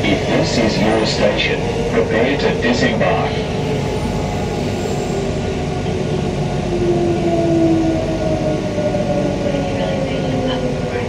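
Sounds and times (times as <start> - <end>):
train rumbling on rails: 0.0 - 11.0.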